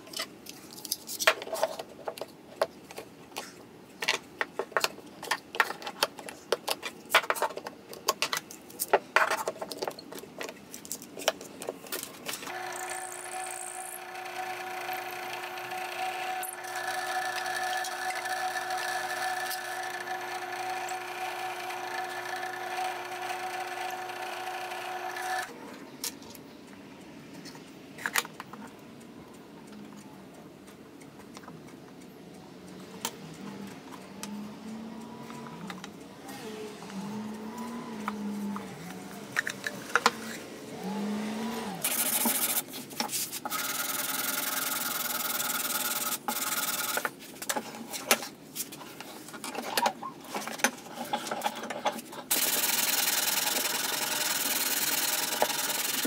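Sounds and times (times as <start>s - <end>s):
small power tool motor running: 12.5s - 25.5s, 43.5s - 47.0s, 52.3s - 56.0s.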